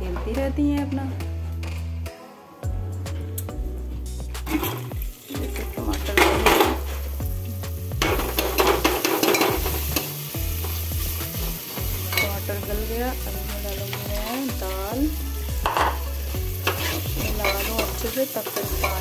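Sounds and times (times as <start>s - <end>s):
oil sizzling: 3.3s - 19.0s
ladle scraping a pot: 16.6s - 19.0s.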